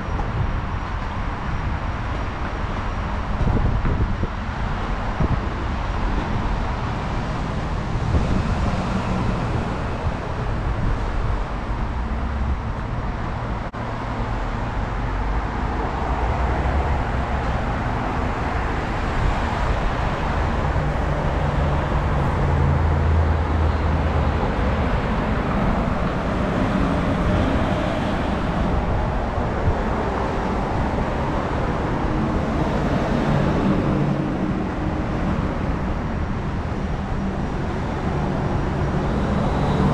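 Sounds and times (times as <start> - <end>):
road traffic rumble: 0.0 - 39.9
vehicles passing: 0.0 - 39.9.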